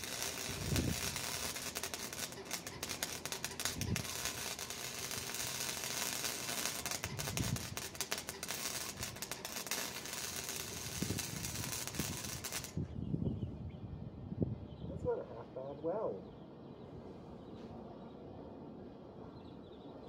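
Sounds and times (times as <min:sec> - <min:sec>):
welding arc crackling: 0:00.0 - 0:12.8.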